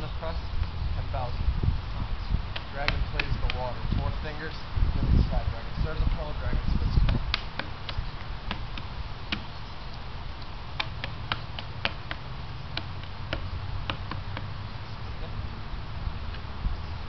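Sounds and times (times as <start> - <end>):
low steady rumble: 0.0 - 17.0
hands striking wooden post: 2.5 - 3.8, 6.9 - 9.6, 10.8 - 14.6.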